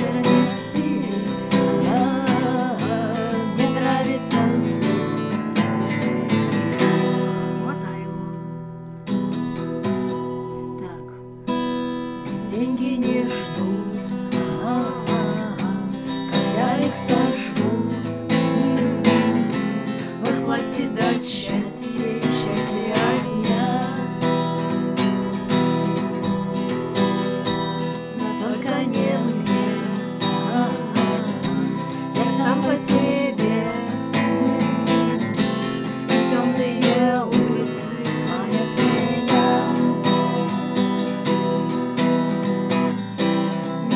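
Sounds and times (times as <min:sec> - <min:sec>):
women singing together: 0:00.0 - 0:07.2, 0:12.3 - 0:24.8, 0:28.1 - 0:41.2
acoustic guitar strumming: 0:00.0 - 0:43.9.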